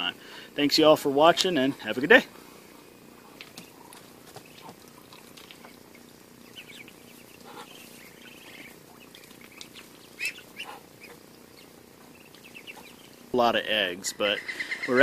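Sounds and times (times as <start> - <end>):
ducklings peeping: 1.2 - 15.0.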